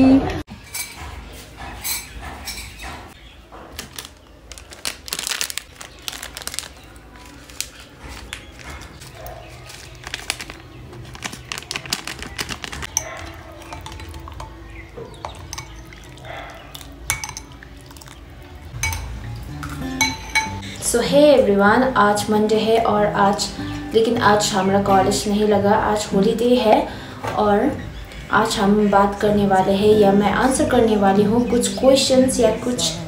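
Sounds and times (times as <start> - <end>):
spoon clinking against ceramic bowl: 12.9 - 20.8.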